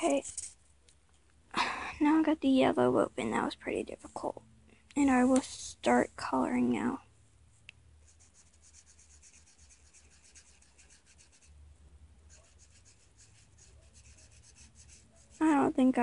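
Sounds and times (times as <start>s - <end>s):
marker rubbing on paper: 8.0s - 11.5s, 12.3s - 15.7s.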